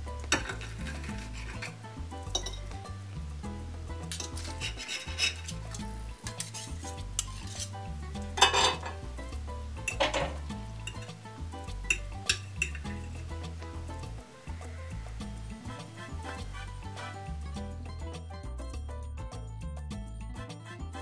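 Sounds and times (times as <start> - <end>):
background music with bass line: 0.0 - 21.0
knife and fork scraping a plate: 0.4 - 1.8, 4.1 - 9.0, 16.0 - 17.3
crunching scrapes: 4.2 - 5.6.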